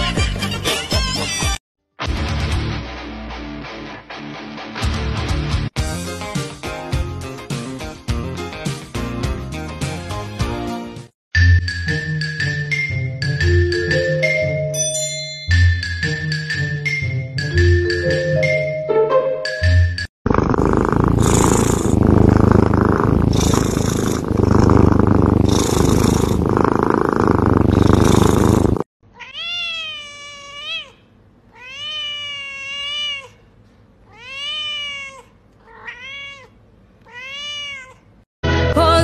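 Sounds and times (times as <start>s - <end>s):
cat purring loudly: 20.2s - 28.9s
cat meowing: 29.1s - 33.4s, 34.1s - 38.1s.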